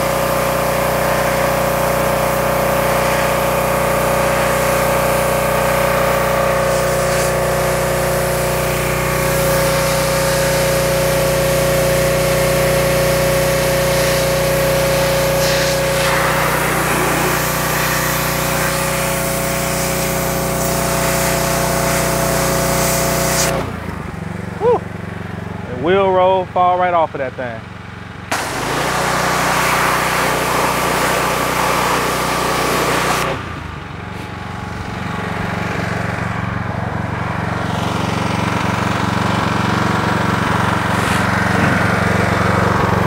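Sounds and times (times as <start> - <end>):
pressure washer motor humming: 0.0 - 43.0
high-pressure spray hissing: 4.2 - 23.6.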